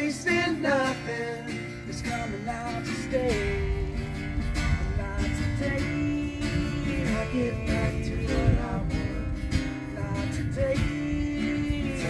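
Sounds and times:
strummed acoustic guitar: 0.0s - 12.0s
voices singing together: 0.0s - 12.0s.

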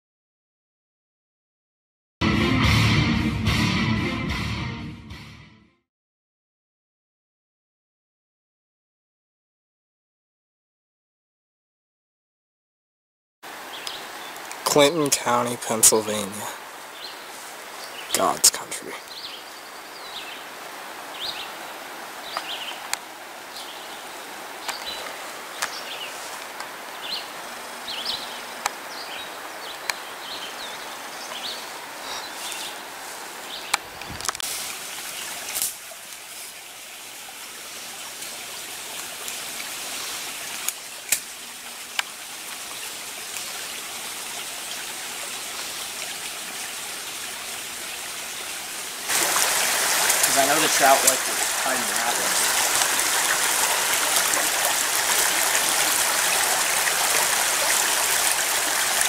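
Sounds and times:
shallow mountain stream running: 13.4s - 59.0s
steady outdoor hiss: 13.4s - 59.0s
small birds chirping: 13.7s - 14.5s, 16.8s - 22.9s, 23.5s - 34.2s.

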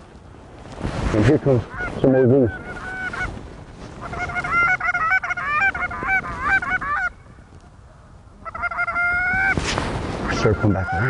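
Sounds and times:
goose honking: 1.7s - 3.3s, 4.0s - 7.2s, 8.4s - 9.6s, 10.2s - 11.0s.

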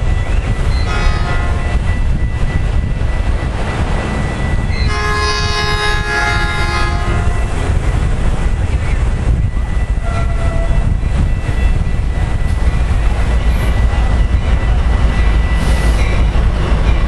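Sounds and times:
low train rumble: 0.0s - 17.0s
train air horn blasts: 0.8s - 1.7s, 4.8s - 7.5s, 10.0s - 10.9s.

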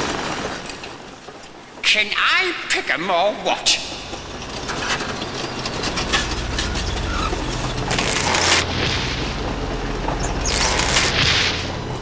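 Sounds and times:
low machine rumble: 3.3s - 12.0s.

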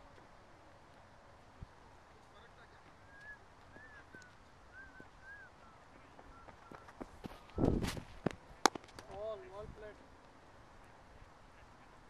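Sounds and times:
running footsteps: 0.8s - 9.4s
faint bird chirps: 3.0s - 7.6s
cricket bat striking ball: 8.6s - 9.1s.

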